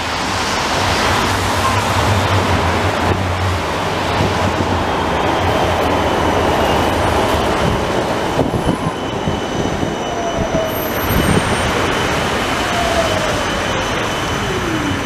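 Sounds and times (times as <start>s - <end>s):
tram wheels on rails: 0.0s - 15.0s
high wheel squeal: 4.0s - 15.0s.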